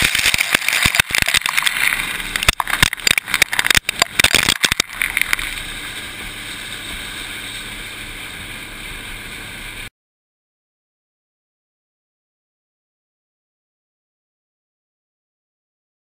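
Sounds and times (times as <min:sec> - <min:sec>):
corn kernels pouring: 0:00.0 - 0:06.8
steady noise: 0:00.0 - 0:09.9.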